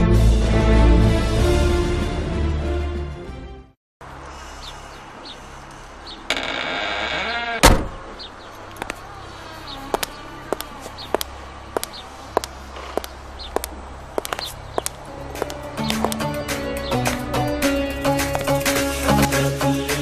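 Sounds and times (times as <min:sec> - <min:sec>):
wooden door creaking open: 0:06.3 - 0:08.0
door shutting with thud: 0:06.3 - 0:08.1
boot heels clicking on pavement: 0:08.5 - 0:09.0, 0:09.9 - 0:19.5.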